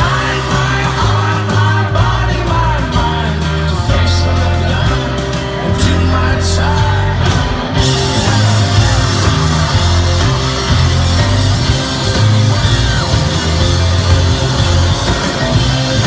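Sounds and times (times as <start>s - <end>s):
rock band playing: 0.0s - 16.0s.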